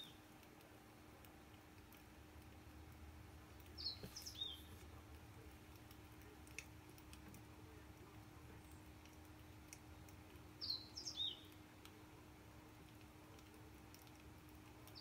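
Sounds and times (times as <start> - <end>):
steady low hum: 0.1 - 15.0
bird chirps: 3.8 - 4.7, 10.6 - 11.5.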